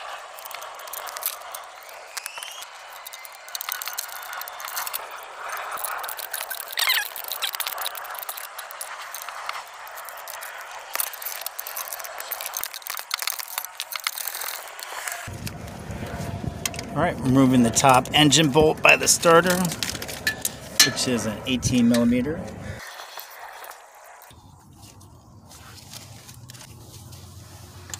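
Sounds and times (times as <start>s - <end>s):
ratchet wrench clicking on metal: 2.3s - 14.6s.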